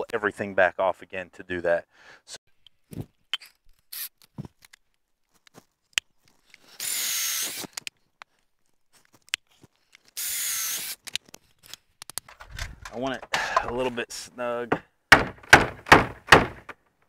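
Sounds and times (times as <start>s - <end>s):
cordless drill boring into wood: 6.7s - 7.8s, 10.2s - 11.0s
handling clicks and knocks: 11.1s - 13.9s.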